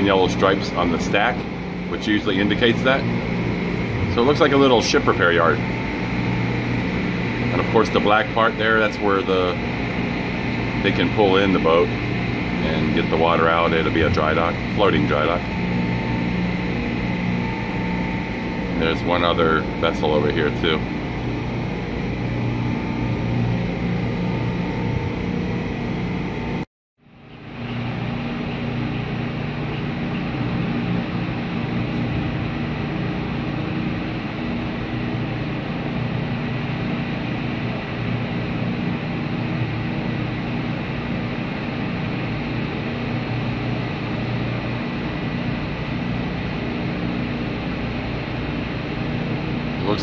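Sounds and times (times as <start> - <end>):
ship machinery hum: 0.0 - 50.0.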